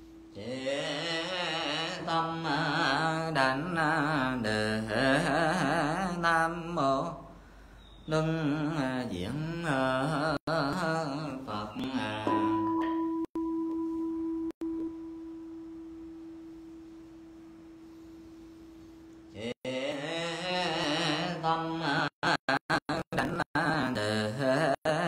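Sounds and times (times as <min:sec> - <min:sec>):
temple bell ringing: 0:12.3 - 0:16.2.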